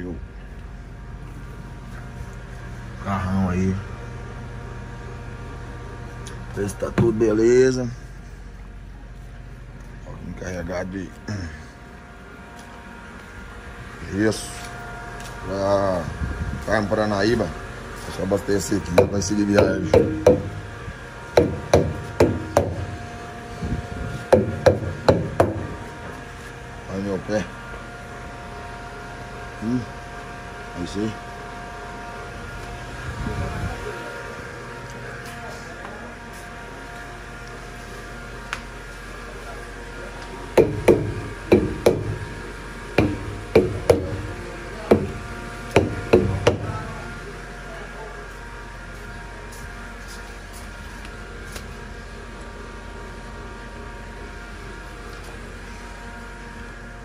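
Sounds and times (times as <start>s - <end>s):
steady low hum: 0.0s - 57.0s
sharp ringing knocks: 18.9s - 20.7s, 21.3s - 23.0s, 24.3s - 25.8s, 40.6s - 42.2s, 43.0s - 44.3s, 45.8s - 46.7s.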